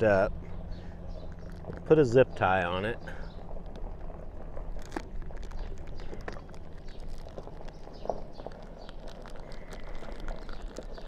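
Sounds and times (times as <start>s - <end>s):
low steady hum: 0.0s - 11.0s
small clicks: 3.2s - 11.0s
plastic bag rustling and crinkling: 3.4s - 11.0s.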